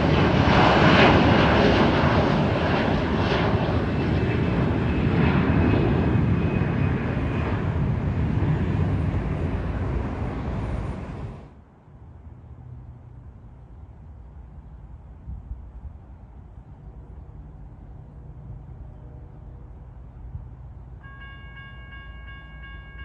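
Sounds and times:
jet engines roaring: 0:00.0 - 0:11.6.

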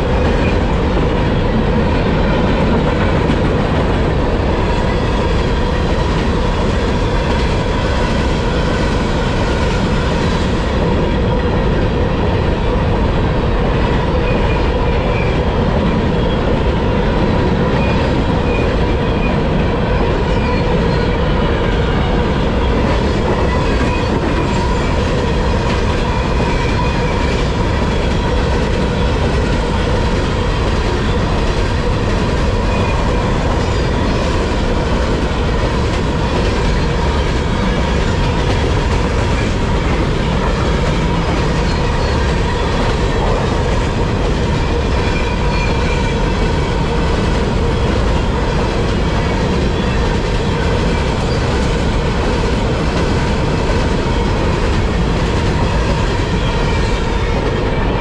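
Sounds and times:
freight train wheels rumbling: 0:00.0 - 0:58.0.

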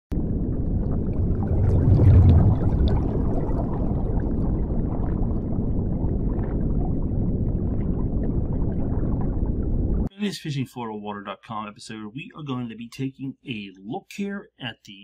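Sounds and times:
underwater water wash: 0:00.1 - 0:10.1
fizzing bubbles: 0:00.2 - 0:10.1.

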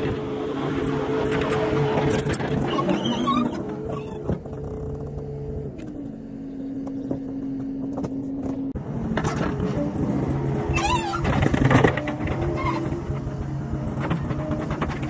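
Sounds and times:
diesel engine running: 0:00.0 - 0:15.0.

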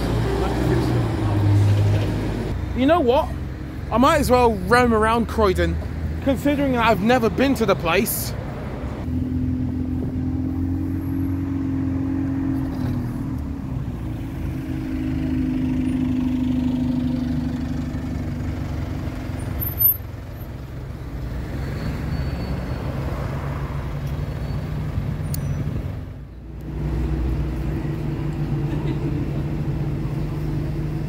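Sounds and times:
bus diesel engine driving past: 0:00.0 - 0:04.2, 0:08.5 - 0:31.0
road traffic: 0:00.0 - 0:31.0.

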